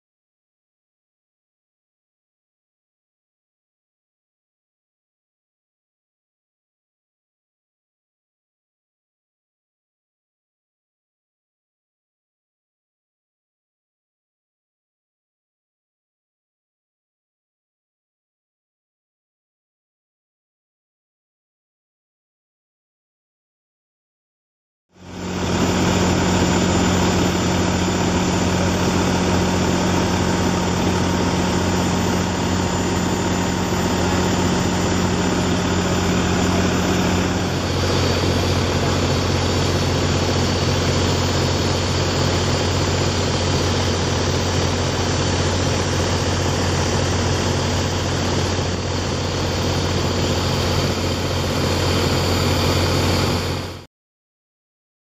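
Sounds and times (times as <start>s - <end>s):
heavy vehicle engine idling: 25.0s - 53.8s.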